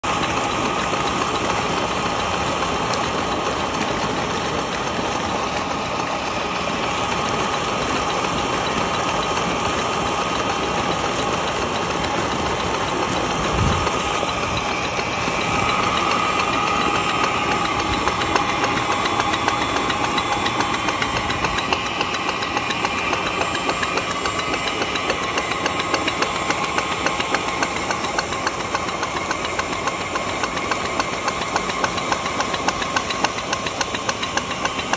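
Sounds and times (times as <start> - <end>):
pump humming: 0.0 - 34.9
water gushing from pipe: 0.1 - 34.9.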